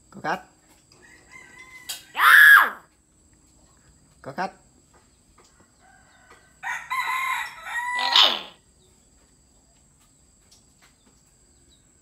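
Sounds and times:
bird harsh crow-like call: 2.1 - 2.9.

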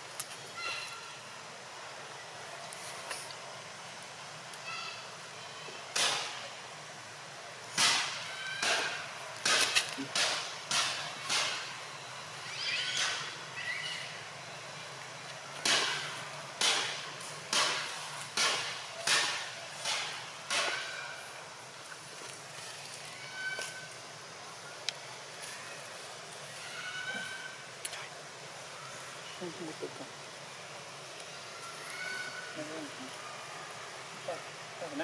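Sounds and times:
monkeys giving harsh cries: 12.4 - 14.2, 26.5 - 27.7.

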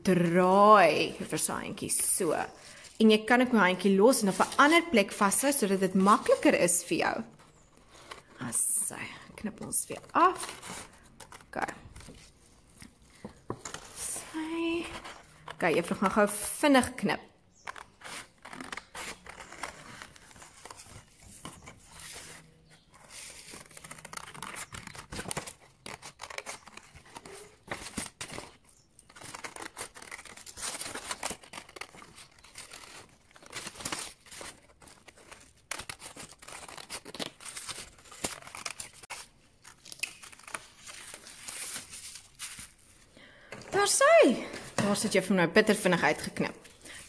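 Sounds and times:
paper rustling: 1.9 - 8.6, 9.4 - 16.6, 17.6 - 45.2
scissors snipping paper: 23.0 - 41.0.

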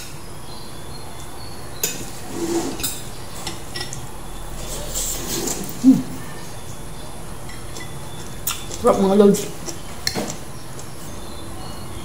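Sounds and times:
cutlery clinking on plates: 2.7 - 5.8, 7.5 - 8.8.

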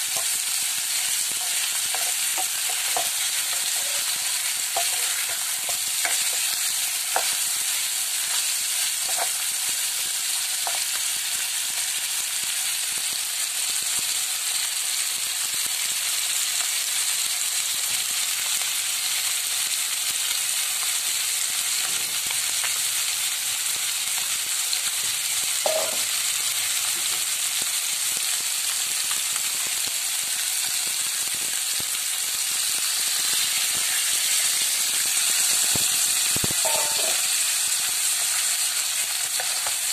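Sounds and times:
chicken frying in hot oil: 0.0 - 39.9
wooden spatula knocking pan: 25.7 - 26.1, 36.6 - 37.2.

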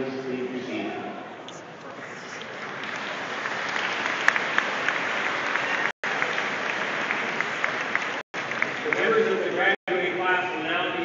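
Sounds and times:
crowd applauding: 2.4 - 9.8.

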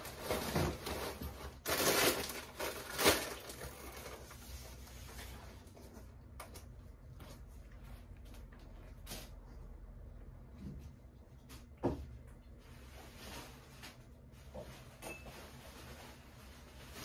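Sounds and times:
rustling packing material in box: 0.0 - 6.2, 12.6 - 17.0.

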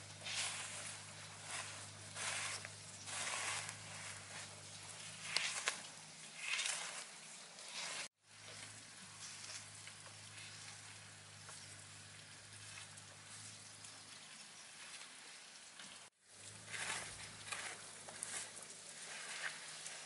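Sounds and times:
pole scraping sand: 0.0 - 11.7, 16.3 - 20.0
faint steady hiss: 0.0 - 20.0.

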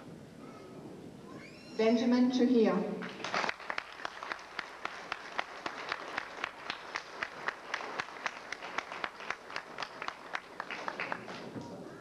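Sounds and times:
audience clapping: 3.0 - 12.0.

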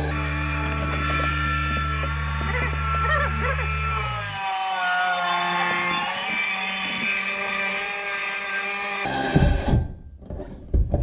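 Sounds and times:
circular saw whine: 0.0 - 9.3.

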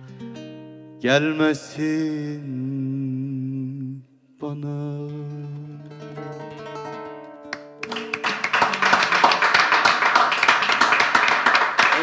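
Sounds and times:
nylon-string acoustic guitar: 0.0 - 9.1
applause: 7.5 - 12.0.

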